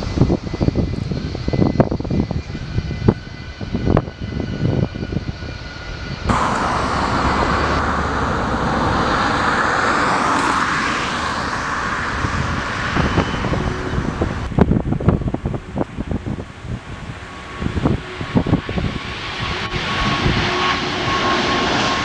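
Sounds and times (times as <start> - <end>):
jet engine roar: 0.0 - 22.0
jet engines whining: 0.0 - 22.0
low wind buffeting: 0.0 - 22.0.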